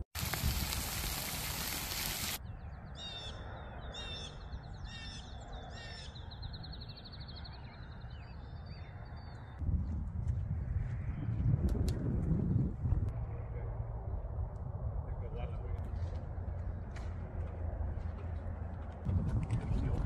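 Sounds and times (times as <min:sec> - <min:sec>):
low wind rumble: 0:00.2 - 0:20.0
birds calling harshly: 0:02.5 - 0:09.6.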